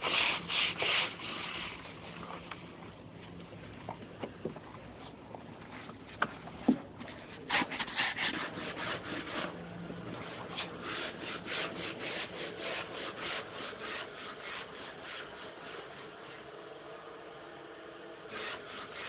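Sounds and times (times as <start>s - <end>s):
rhythmic scraping strokes: 7.5s - 16.4s, 18.3s - 19.0s.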